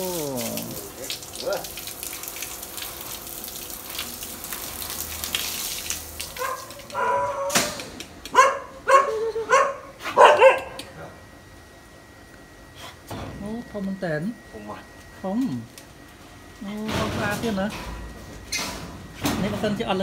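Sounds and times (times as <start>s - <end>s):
water spraying from hose: 0.0s - 7.0s.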